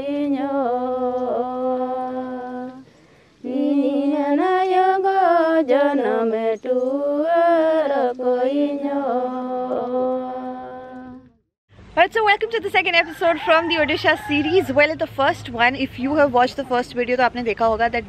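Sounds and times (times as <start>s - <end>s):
woman singing unaccompanied: 0.0s - 11.3s.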